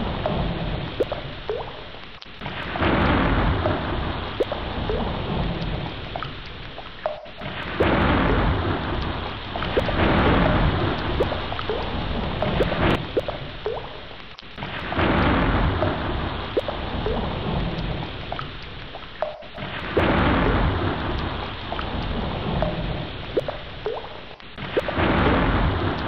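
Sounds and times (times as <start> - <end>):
heavy rain: 0.0 - 26.0
rolling thunder: 2.4 - 6.1, 7.4 - 13.2, 14.6 - 18.2, 19.6 - 23.4, 24.6 - 26.0.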